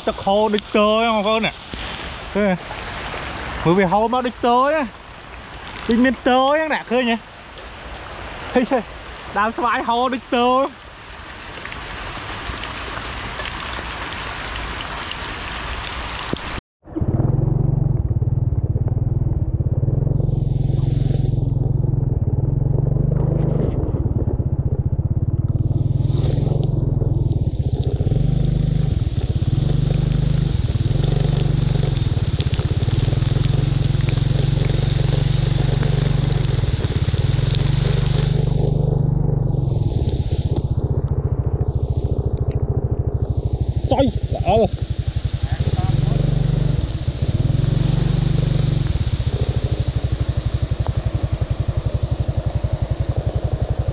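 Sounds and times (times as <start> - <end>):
steady hiss: 0.0 - 16.6, 43.2 - 53.9
low motor drone: 16.8 - 53.9.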